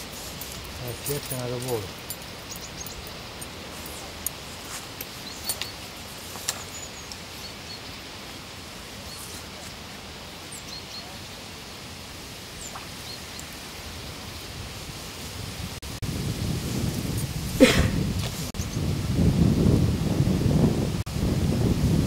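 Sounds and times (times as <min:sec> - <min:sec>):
open air hiss: 0:00.0 - 0:22.0
bird chirps: 0:00.8 - 0:04.2, 0:05.0 - 0:08.1.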